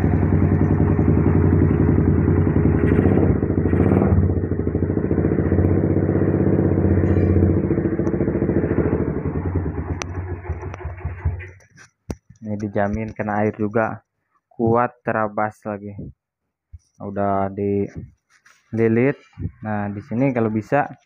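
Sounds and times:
motorcycle engine idling: 0.0 - 11.9.

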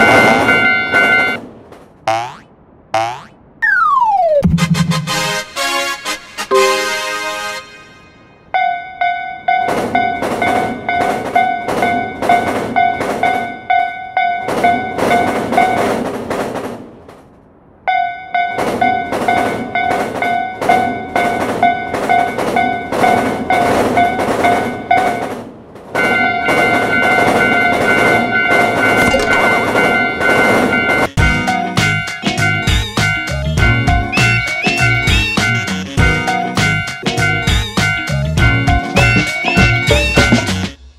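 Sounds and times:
railroad crossing bell ringing: 0.0 - 1.4, 6.5 - 15.9, 17.9 - 25.3, 26.0 - 33.3, 34.4 - 40.6
high-pitched crossing signal tone: 26.2 - 31.2, 38.7 - 40.8
drum kit beat: 31.2 - 40.9.

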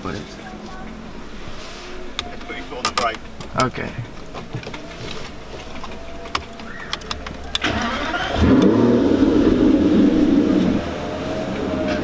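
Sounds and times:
car engine revving: 0.9 - 12.0
starter motor cranking: 2.0 - 10.8
clicks: 2.1 - 8.8.

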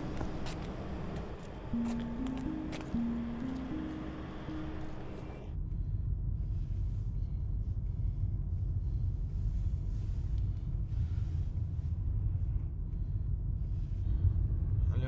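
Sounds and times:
car engine and road noise: 0.0 - 5.6.

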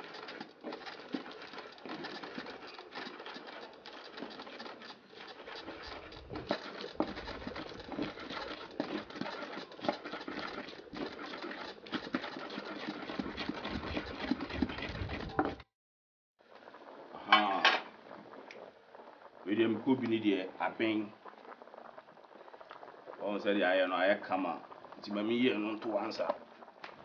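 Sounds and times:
pestle grinding in earthenware bowl: 0.0 - 15.6.

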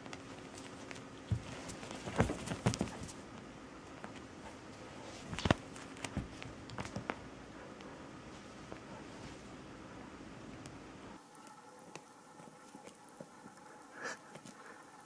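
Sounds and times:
cat thumping and scuffling on couch: 0.0 - 3.3, 3.9 - 7.2.

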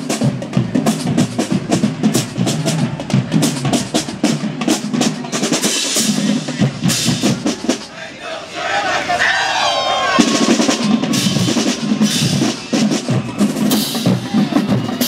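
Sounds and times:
snare drums: 0.0 - 8.0, 10.0 - 15.0
bass drums: 10.2 - 15.0.

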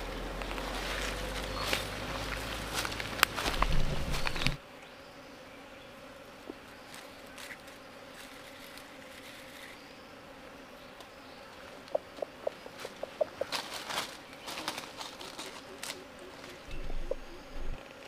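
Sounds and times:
insects buzzing low drone: 0.0 - 18.0
footsteps rustling in grass: 0.4 - 4.6, 6.6 - 9.8, 11.5 - 17.8.

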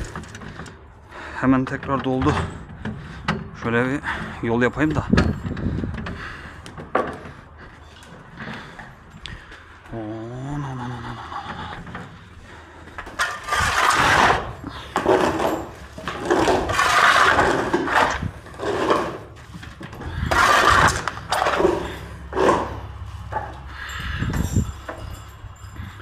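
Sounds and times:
shovel scraping barn floor: 13.1 - 23.6.

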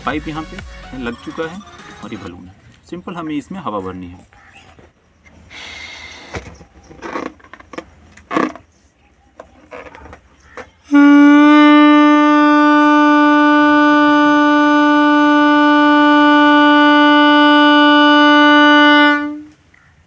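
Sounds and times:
balloon horn steady tone: 10.9 - 19.6.

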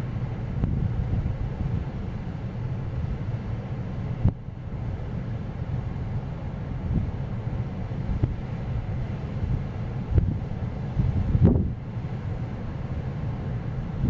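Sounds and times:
wind buffeting microphone: 0.0 - 3.3, 6.6 - 14.0
heavy surf: 0.0 - 14.0.

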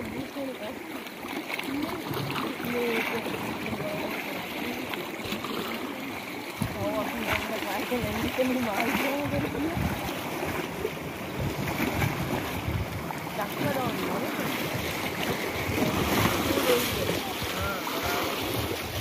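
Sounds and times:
sea waves washing against rocks: 0.0 - 19.0
wind buffeting microphone: 6.6 - 19.0.

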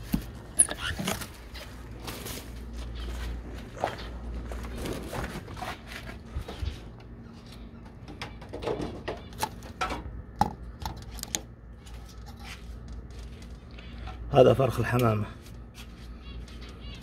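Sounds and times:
clicks and knocks on wire-mesh cages: 7.8 - 14.3.

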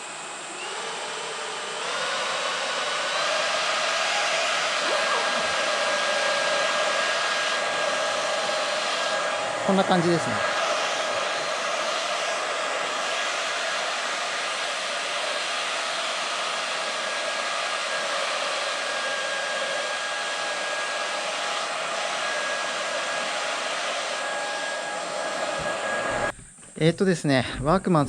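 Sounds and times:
cooling fans whirring: 0.0 - 26.7.

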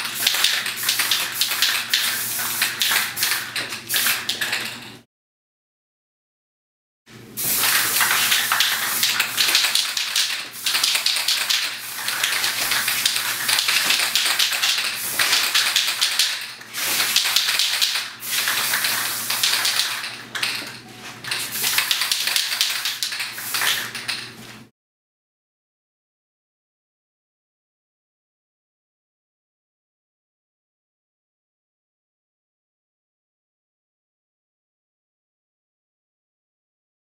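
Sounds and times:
spray can hissing: 0.0 - 4.4, 7.4 - 20.1, 21.3 - 24.2.

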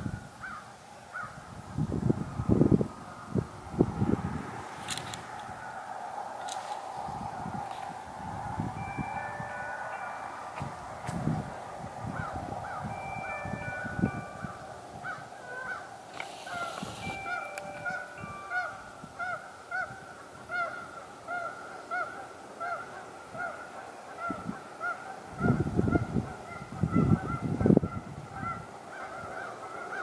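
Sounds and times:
low buffeting noise: 1.4 - 20.1
geese honking: 8.8 - 30.0.

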